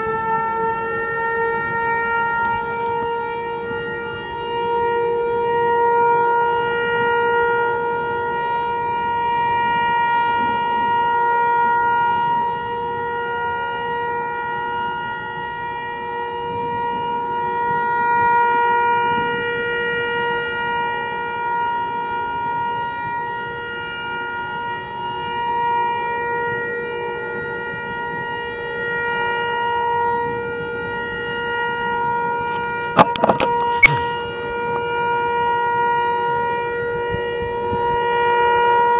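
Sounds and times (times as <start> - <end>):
tornado warning siren: 0.0 - 38.9
wind noise: 19.0 - 19.6, 36.2 - 38.9.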